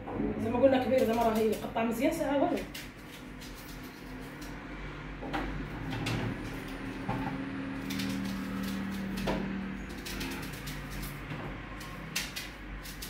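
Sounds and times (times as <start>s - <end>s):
knife slicing onion: 2.5s - 4.6s, 5.6s - 13.0s.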